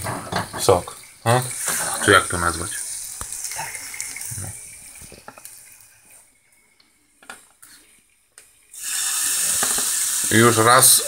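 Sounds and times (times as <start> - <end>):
kitchenware clicks and knocks: 0.0 - 0.8
frying pan sizzling: 0.0 - 6.4, 8.7 - 11.0.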